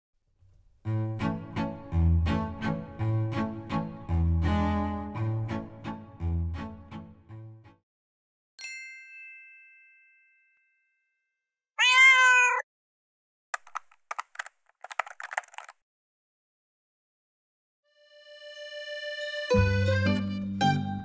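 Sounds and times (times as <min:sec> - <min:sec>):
cat meowing: 0:11.8 - 0:12.6
run of sharp clicks: 0:13.6 - 0:15.8.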